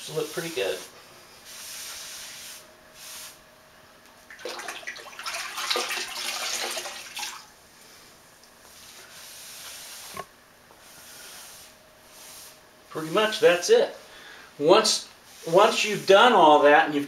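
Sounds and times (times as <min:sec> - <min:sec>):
wet sponge wiping tile: 0:00.0 - 0:03.4, 0:08.7 - 0:13.7, 0:15.3 - 0:16.2.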